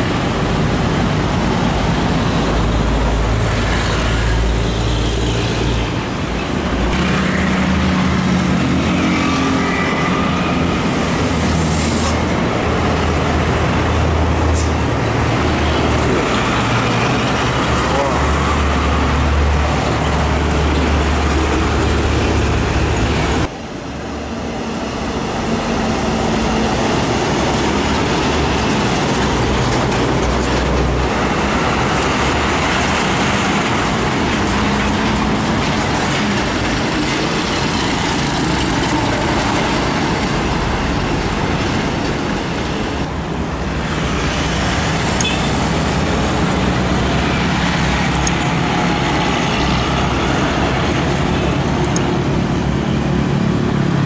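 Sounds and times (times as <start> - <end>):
heavy trucks driving past: 0.0 - 54.0
tyre and traffic noise: 0.0 - 54.0.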